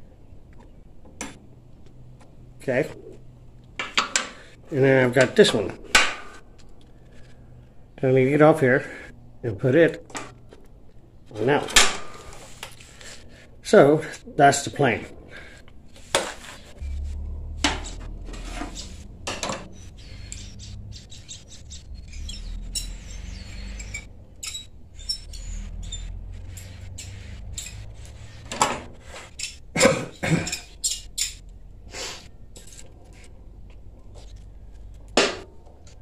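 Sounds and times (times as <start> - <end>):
low steady hum: 0.0 - 36.0
metal tools clinking: 17.7 - 20.8, 22.1 - 31.6.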